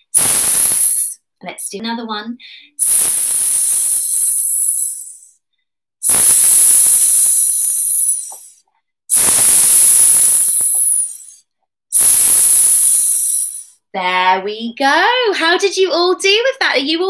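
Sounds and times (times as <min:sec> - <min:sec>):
woman making hissing sound: 0:00.0 - 0:01.2, 0:02.6 - 0:05.4, 0:06.0 - 0:11.4, 0:12.0 - 0:13.8.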